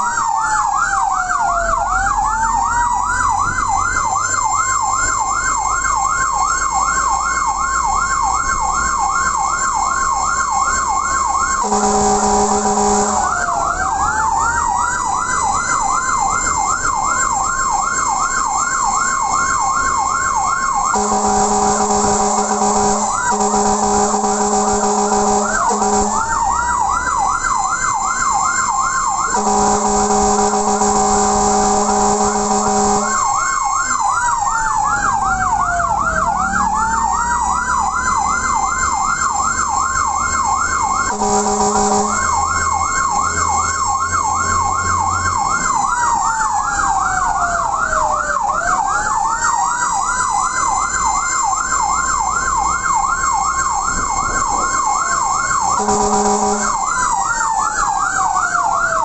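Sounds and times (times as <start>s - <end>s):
fire truck siren: 0.0s - 59.0s
horn blasts: 11.6s - 13.6s, 20.9s - 26.6s, 29.2s - 33.4s, 41.0s - 43.0s, 55.6s - 57.2s.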